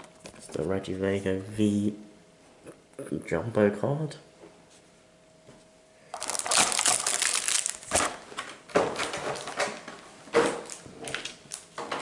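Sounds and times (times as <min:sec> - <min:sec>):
foil wrappers crinkling: 0:06.1 - 0:08.2
plastic blister tray crackling: 0:06.2 - 0:09.9.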